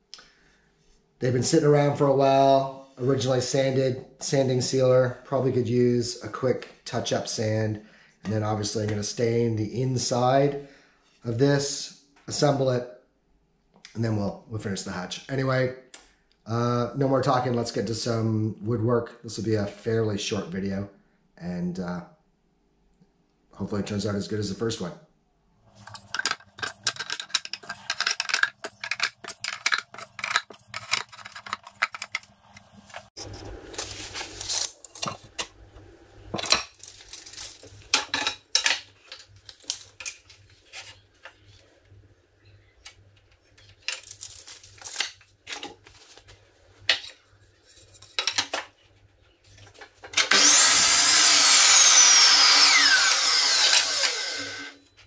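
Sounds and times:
mitre saw cutting board: 50.2 - 54.8.

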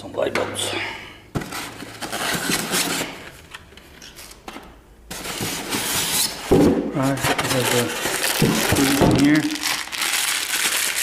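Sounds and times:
cardboard and foam rustling: 5.1 - 11.0.

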